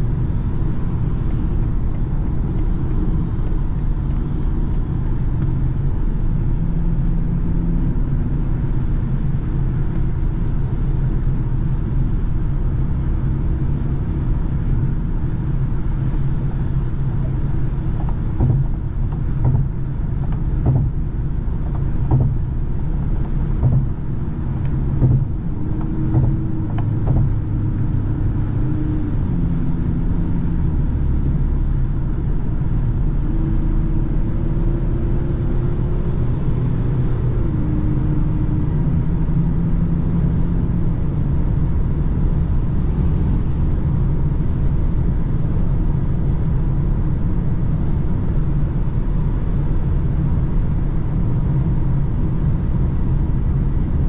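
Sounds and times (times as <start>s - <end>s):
car engine and road drone: 0.0s - 54.0s
knocks from road surface: 18.0s - 22.6s, 23.2s - 24.1s, 24.9s - 27.4s.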